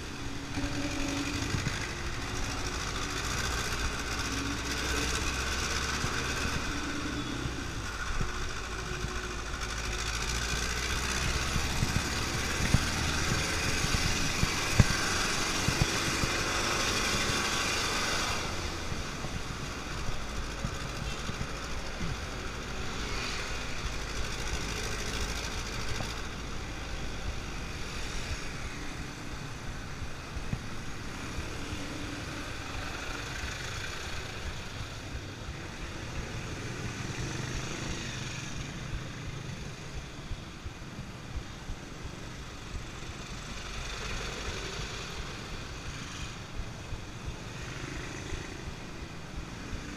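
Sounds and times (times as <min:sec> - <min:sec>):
truck and motorcycle engines idling: 0:00.0 - 0:27.6
steady traffic rushing noise: 0:00.0 - 0:49.9.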